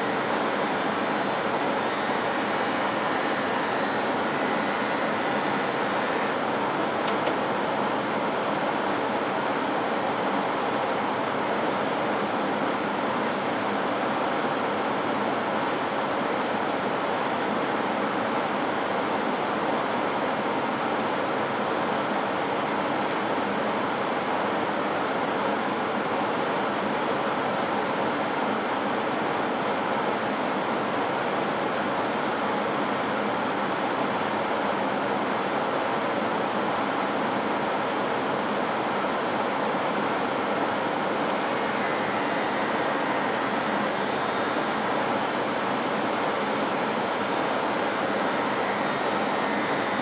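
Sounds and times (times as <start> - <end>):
blower fan rushing air: 0.0 - 50.0
click: 7.0 - 7.4.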